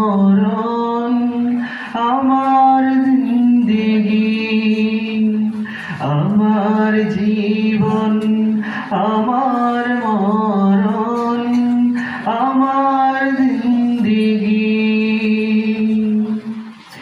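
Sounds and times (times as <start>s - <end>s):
man singing into a microphone: 0.0s - 17.0s
singer breathing: 1.5s - 2.0s, 5.5s - 6.1s, 8.5s - 9.0s, 11.9s - 12.3s.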